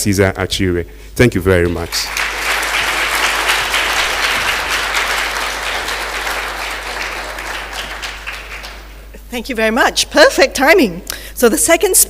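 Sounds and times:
audience applauding: 0:01.6 - 0:09.1.

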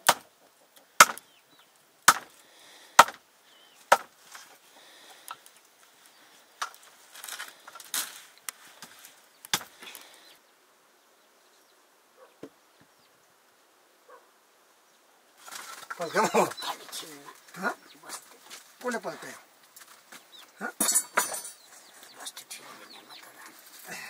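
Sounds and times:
blade chopping into wood: 0:01.0 - 0:01.2, 0:02.1 - 0:02.3, 0:03.0 - 0:03.2.

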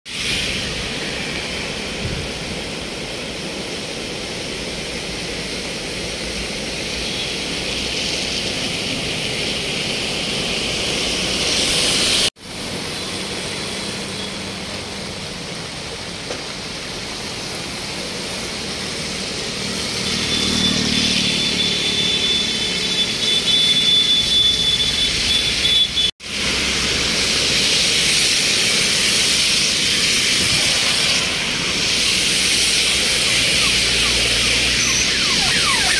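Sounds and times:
vehicles passing on wet road: 0:00.1 - 0:35.9
floodwater rushing: 0:00.2 - 0:23.4, 0:26.2 - 0:35.9.

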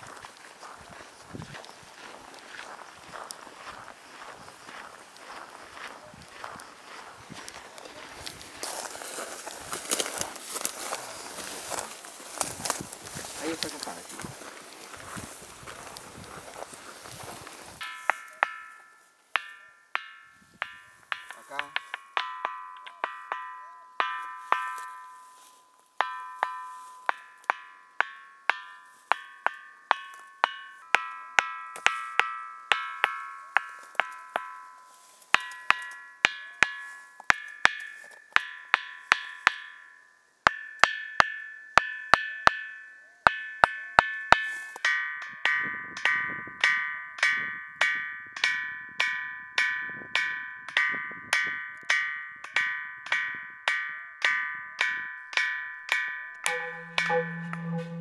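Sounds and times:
stone striking ringing boulder: 0:17.8 - 0:25.2, 0:54.2 - 0:58.0.

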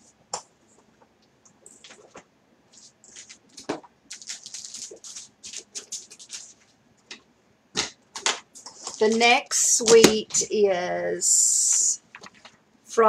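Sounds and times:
packaging rustling and crinkling: 0:01.6 - 0:06.8, 0:12.0 - 0:12.6.

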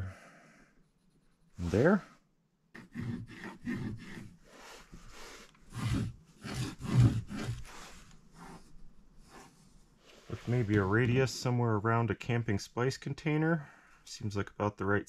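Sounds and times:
pencil scratching on wood: 0:00.8 - 0:02.0, 0:02.8 - 0:10.8.

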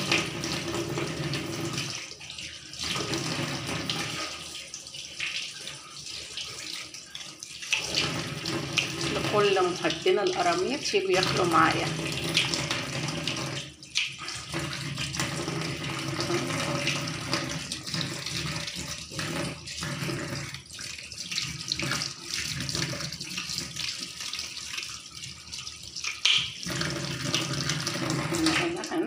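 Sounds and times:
tap water running into sink: 0:00.0 - 0:29.0
short splashes and clicks: 0:07.6 - 0:24.1, 0:26.0 - 0:29.0.

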